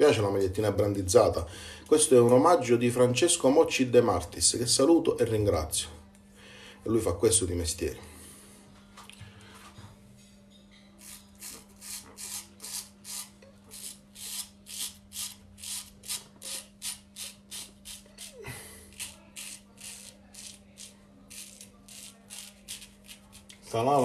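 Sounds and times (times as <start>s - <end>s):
razor scraping stubble: 11.0s - 24.0s.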